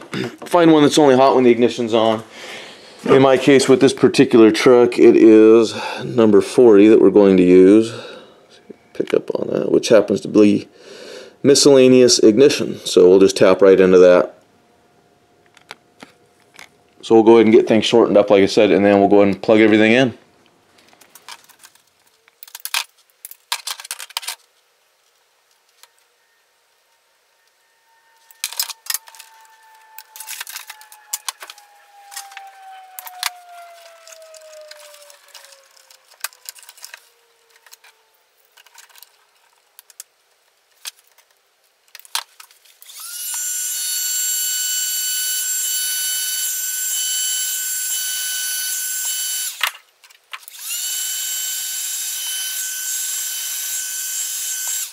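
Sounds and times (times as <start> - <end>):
heat gun fan whine: 28.1 - 39.0, 42.8 - 49.8, 50.4 - 54.9.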